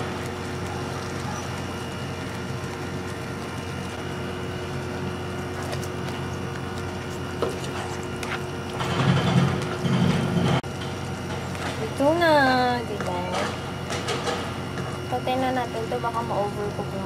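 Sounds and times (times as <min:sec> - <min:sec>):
steady background hum: 0:00.0 - 0:17.0
spatula stirring in frying pan: 0:05.5 - 0:08.9.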